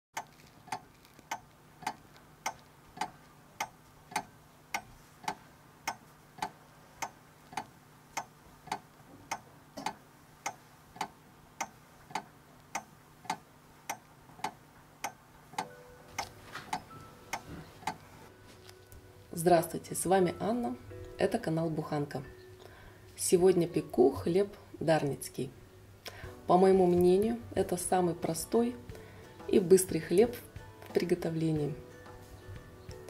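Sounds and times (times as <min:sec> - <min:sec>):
clock ticking: 0:00.2 - 0:18.0.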